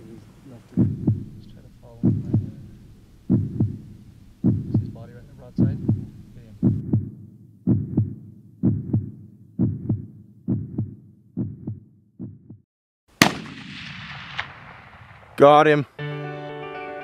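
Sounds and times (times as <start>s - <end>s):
heartbeat thumps: 0.6s - 12.7s.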